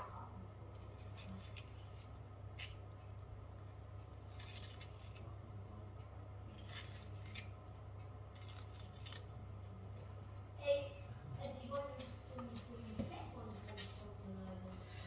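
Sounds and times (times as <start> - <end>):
steady low hum: 0.0 - 15.0
kitchen utensils scraping and clicking: 11.5 - 15.0.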